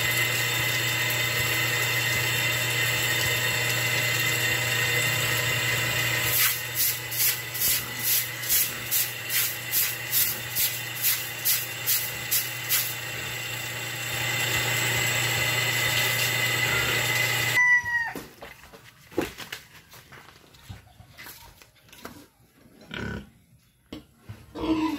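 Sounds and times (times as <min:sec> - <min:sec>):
small electric motor humming: 0:00.0 - 0:17.6
tool scraping wet concrete: 0:06.2 - 0:13.1.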